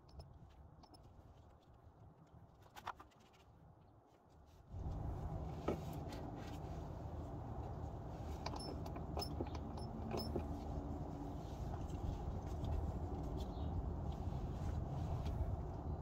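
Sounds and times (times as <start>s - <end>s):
hand pump clicks and knocks: 8.4s - 10.6s.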